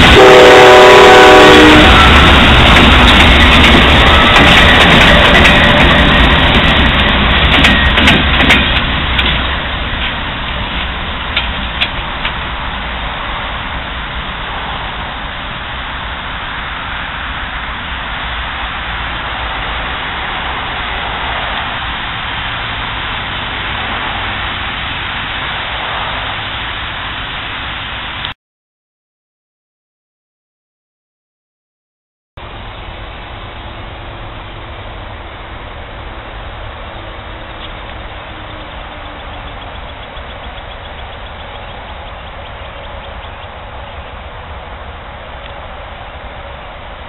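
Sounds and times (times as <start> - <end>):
locomotive engine rumble: 0.0 - 28.3, 32.4 - 47.0
train wheel noise: 0.0 - 28.3, 32.4 - 47.0.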